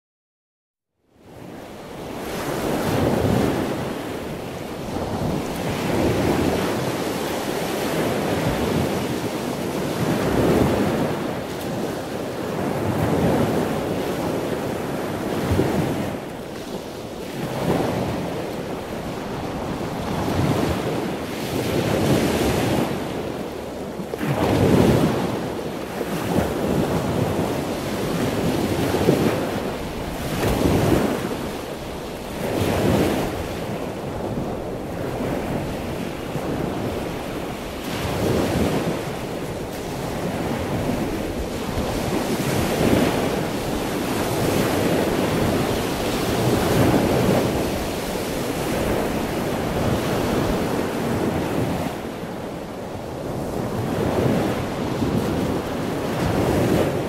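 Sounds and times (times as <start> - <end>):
ocean waves washing: 1.2 - 57.0.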